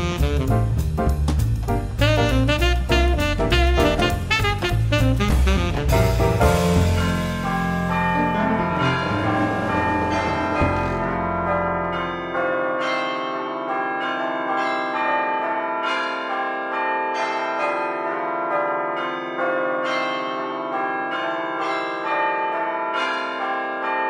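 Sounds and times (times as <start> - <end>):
bells playing music: 6.0 - 24.0.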